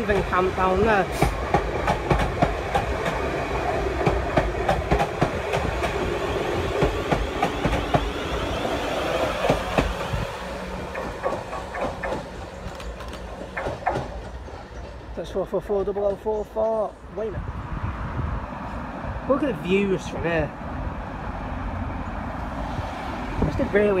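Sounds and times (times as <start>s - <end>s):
wheels clicking over rail joints: 0.0s - 8.1s, 10.8s - 16.9s
train passing: 0.0s - 24.0s.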